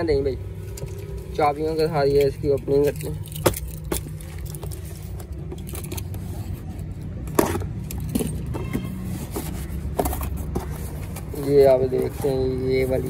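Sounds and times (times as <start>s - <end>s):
keys jangling and scraping: 2.0s - 7.1s, 7.7s - 9.1s.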